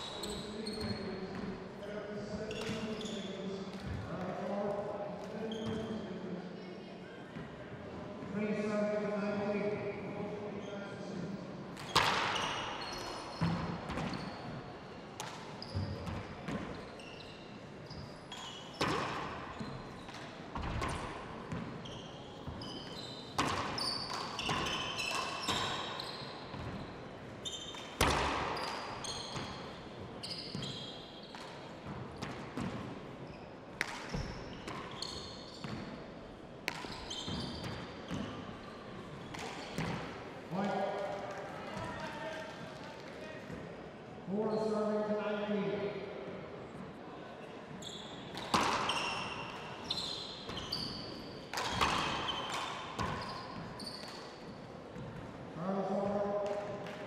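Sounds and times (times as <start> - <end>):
shoes squeaking on floor: 0.0 - 4.1, 5.4 - 6.0, 11.8 - 36.1, 36.8 - 40.0, 47.7 - 55.2.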